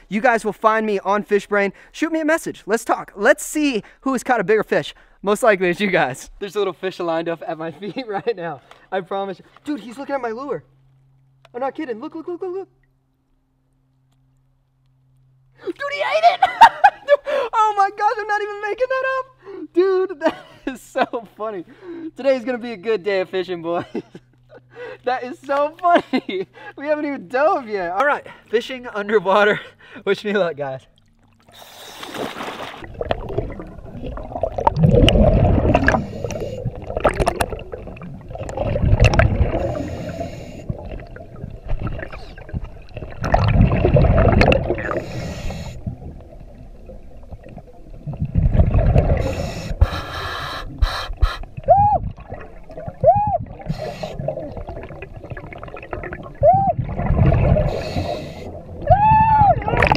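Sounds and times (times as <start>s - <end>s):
gurgling exhaled bubbles: 31.4s - 59.9s
diver breathing through regulator: 31.5s - 32.4s, 35.5s - 37.0s, 39.4s - 41.1s, 44.8s - 46.0s, 48.9s - 51.6s, 53.5s - 54.6s, 57.5s - 58.7s.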